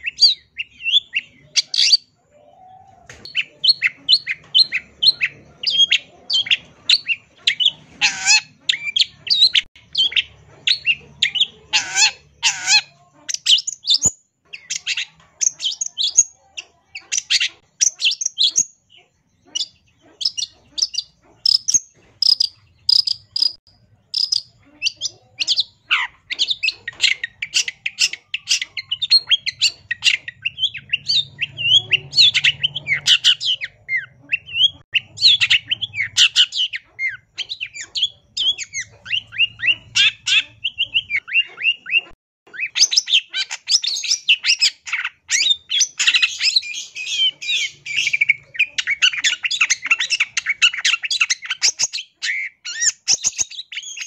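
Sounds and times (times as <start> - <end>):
harsh bird chattering: 0.0 - 54.0
shrike singing varied song: 0.0 - 54.0.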